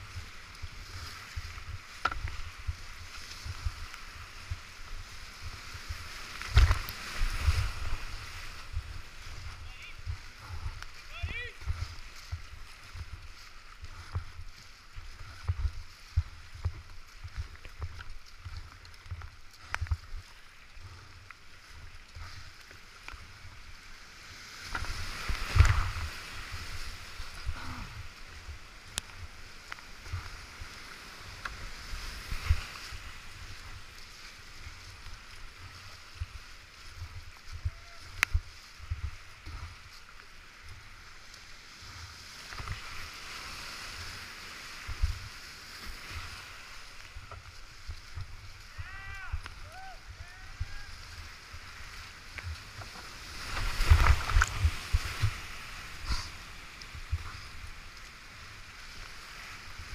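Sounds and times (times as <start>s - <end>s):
whitewater rushing: 0.0s - 13.6s, 41.9s - 59.9s
paddles splashing: 0.0s - 59.9s.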